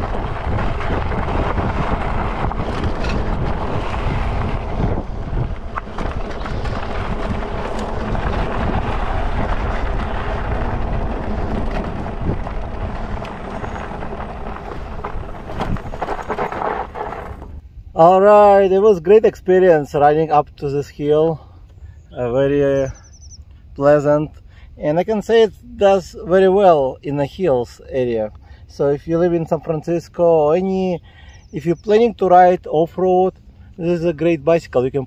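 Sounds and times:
tyres crunching on gravel: 0.0s - 17.6s
wind buffeting microphone: 0.0s - 20.4s.

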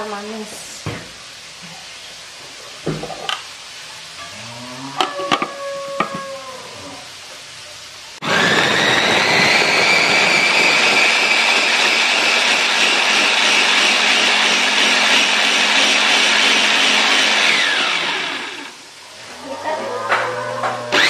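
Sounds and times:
electric chopper motor whining: 8.2s - 16.2s, 17.1s - 18.8s.

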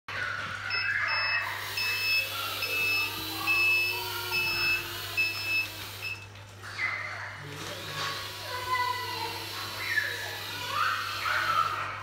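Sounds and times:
electronic reversing beep: 0.7s - 6.3s.

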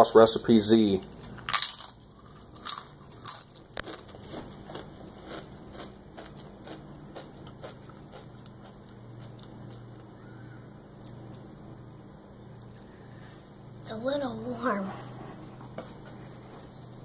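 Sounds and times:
tortilla chip crunching: 1.3s - 10.3s.

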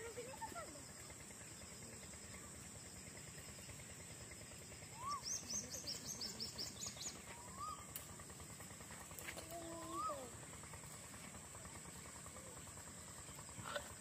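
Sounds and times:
small bird chirping: 0.2s - 8.1s
short rising bird calls: 4.9s - 7.9s.

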